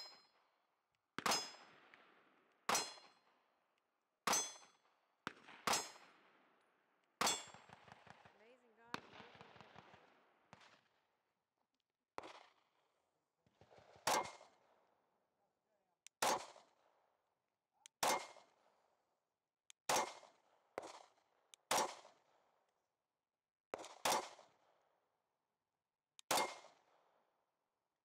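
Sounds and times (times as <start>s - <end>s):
pistol shots: 1.2s - 1.9s, 2.7s - 3.2s, 4.3s - 6.2s, 7.2s - 8.3s, 12.2s - 12.6s, 13.6s - 14.7s, 16.2s - 16.8s, 18.0s - 18.7s, 19.9s - 22.3s, 23.7s - 24.7s, 26.2s - 27.0s.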